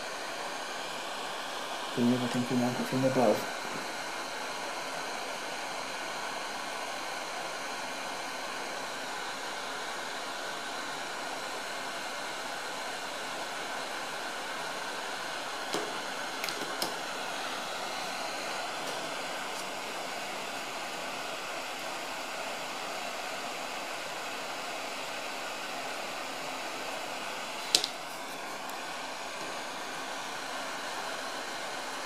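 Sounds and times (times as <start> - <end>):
hot air gun hissing: 15.5 - 23.6.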